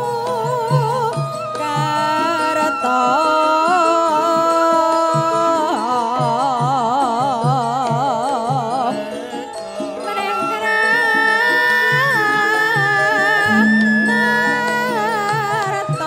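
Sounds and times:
gamelan music: 0:00.0 - 0:16.0
woman singing: 0:00.0 - 0:16.0.

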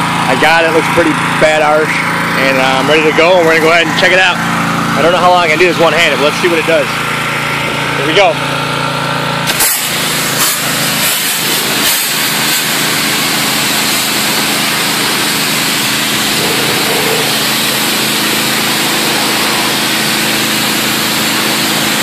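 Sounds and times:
pressure washer engine drone: 0:00.0 - 0:22.0
high-pressure water jet spraying: 0:09.5 - 0:22.0.

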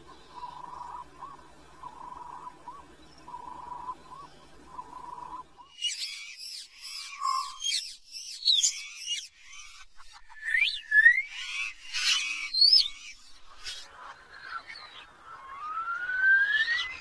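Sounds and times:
drawn-out animal call: 0:00.0 - 0:05.5
low hum: 0:00.0 - 0:05.6
chorus of chirping bird calls: 0:00.0 - 0:17.0.

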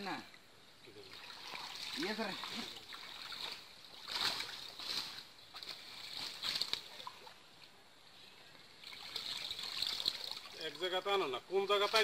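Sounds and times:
water sloshing and splashing: 0:00.9 - 0:07.8, 0:08.7 - 0:12.0
water draining through mesh: 0:01.0 - 0:07.4, 0:08.8 - 0:12.0.

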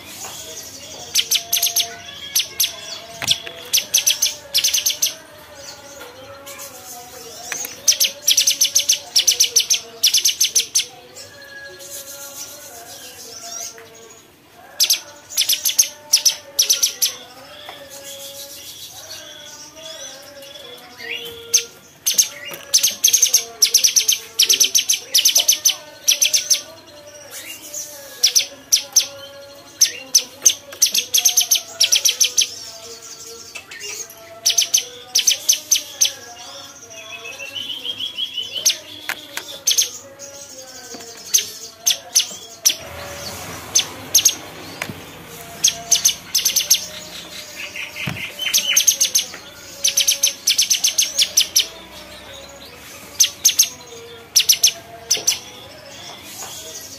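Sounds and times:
bird chirping rapidly: 0:01.0 - 0:05.2, 0:41.1 - 0:51.9.

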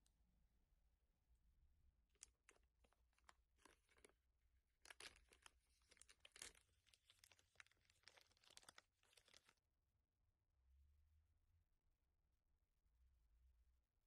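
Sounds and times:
plastic wrapper tearing and crackling: 0:02.2 - 0:04.2, 0:04.8 - 0:09.6.

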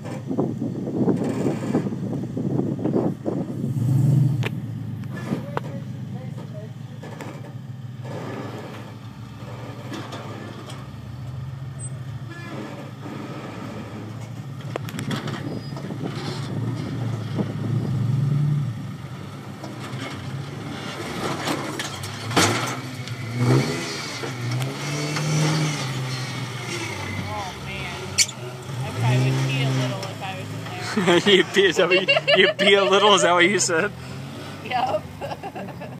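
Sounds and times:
buggy engine revving: 0:00.0 - 0:35.9.

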